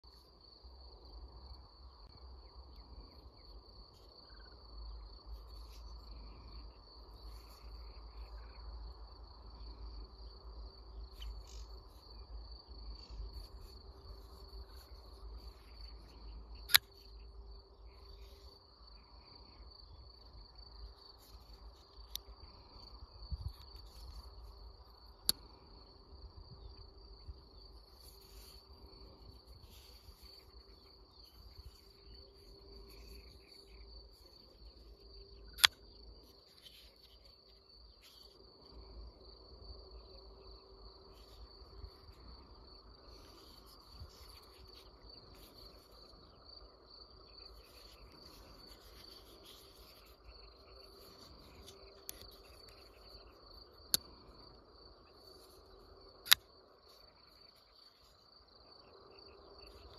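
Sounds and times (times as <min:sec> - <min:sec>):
insects chirring: 0:00.0 - 0:59.9
folding knife blade snapping open: 0:35.6 - 0:35.8, 0:56.2 - 0:56.4.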